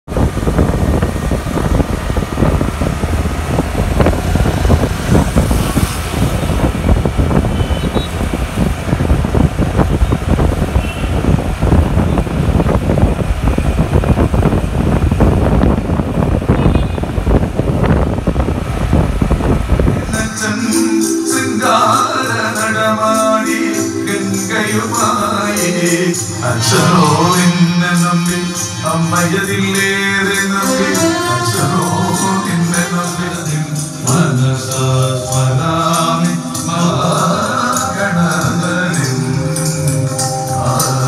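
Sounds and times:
engine and tyre rumble: 0:00.0 - 0:20.6
wind buffeting microphone: 0:00.1 - 0:20.3.

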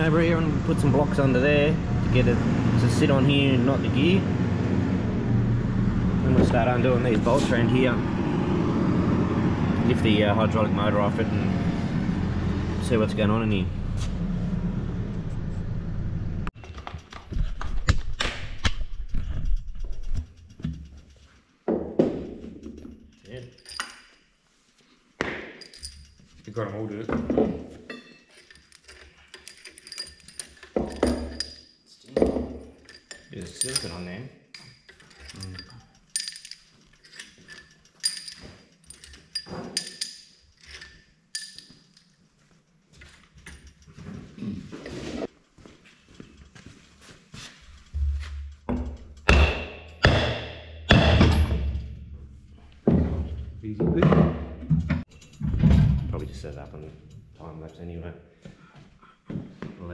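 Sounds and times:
metal tools clinking on metal housing: 0:22.4 - 0:24.3, 0:25.6 - 0:42.3, 0:43.0 - 0:45.0, 0:55.0 - 0:58.0
metallic knocks and taps: 0:47.6 - 0:52.0.

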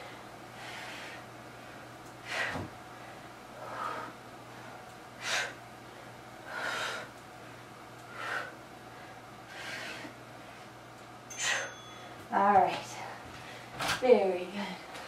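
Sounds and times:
woman breathing hard: 0:00.0 - 0:10.7, 0:11.4 - 0:11.8.

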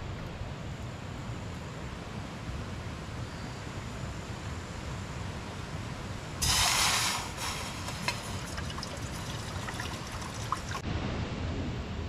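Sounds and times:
bottle gas hissing: 0:06.4 - 0:10.8
soda fizzing and crackling: 0:06.4 - 0:10.8.

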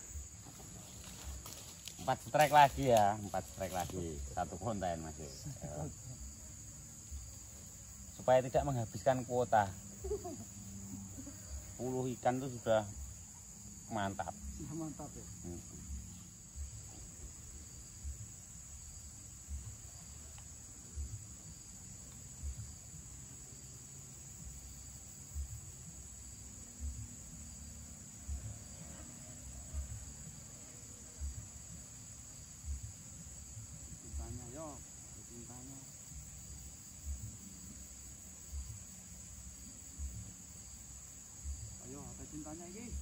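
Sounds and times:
high-pitched insect chorus: 0:00.0 - 0:43.0
soft low thumps: 0:15.9 - 0:20.3.

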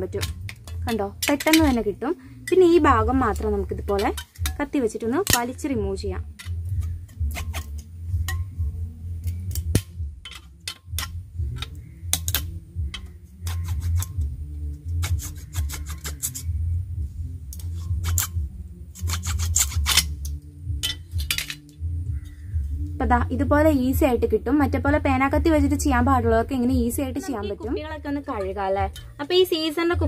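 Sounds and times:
steady low hum: 0:00.0 - 0:30.0
knife clicking on plastic and glass: 0:09.2 - 0:14.1.

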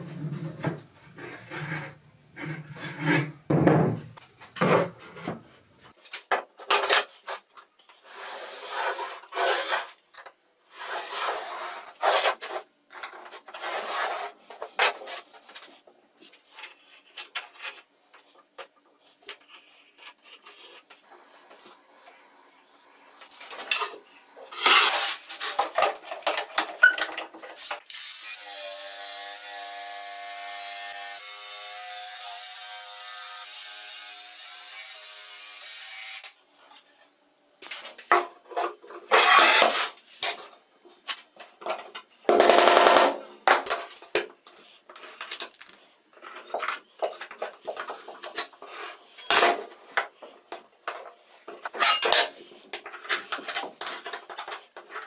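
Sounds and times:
board scraping: 0:00.0 - 0:05.6, 0:08.0 - 0:10.0, 0:10.7 - 0:12.7, 0:13.3 - 0:15.3, 0:24.5 - 0:25.9
rubbing and scraping strokes: 0:10.7 - 0:12.6, 0:13.5 - 0:17.9.

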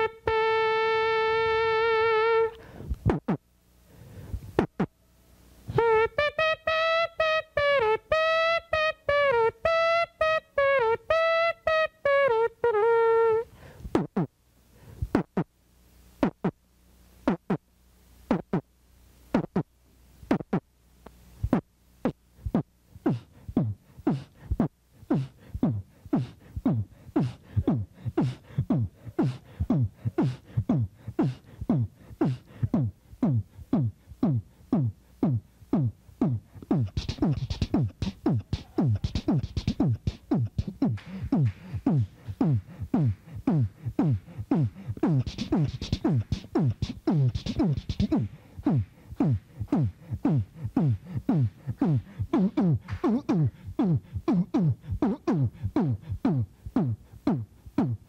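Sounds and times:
beatboxing mouth thumps: 0:01.5 - 0:03.5, 0:04.3 - 0:05.0, 0:05.7 - 0:14.3, 0:15.0 - 0:15.6, 0:16.2 - 0:16.6, 0:17.2 - 0:17.7, 0:18.3 - 0:18.7, 0:19.3 - 0:20.7, 0:21.4 - 0:58.0
hissy beatboxed snare sounds: 0:02.4 - 0:03.5, 0:04.3 - 0:04.9, 0:13.8 - 0:14.3, 0:15.0 - 0:15.5, 0:16.2 - 0:16.6, 0:17.2 - 0:17.6, 0:18.2 - 0:18.7, 0:19.3 - 0:58.0.

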